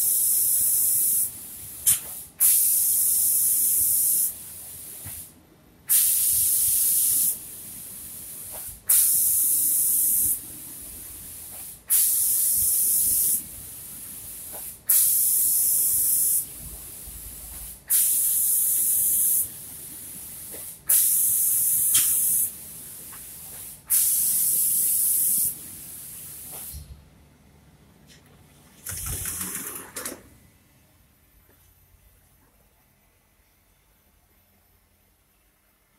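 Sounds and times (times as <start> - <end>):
spray gun hissing bursts: 0.0 - 5.3, 5.9 - 26.9.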